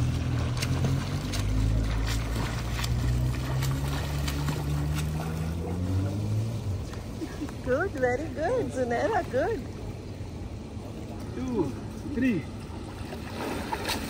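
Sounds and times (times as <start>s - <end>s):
swimmer splashing in pool water: 0.0s - 9.2s, 12.5s - 14.0s
low mechanical hum: 0.0s - 14.0s.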